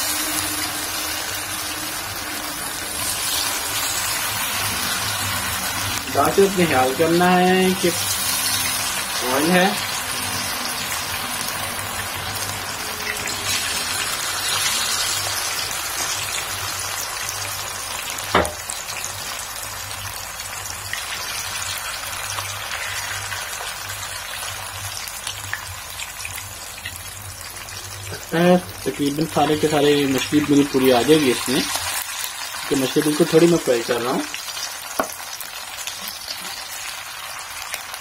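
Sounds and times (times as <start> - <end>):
fish frying in hot oil: 0.0 - 38.0
sharp knock: 18.3 - 18.6.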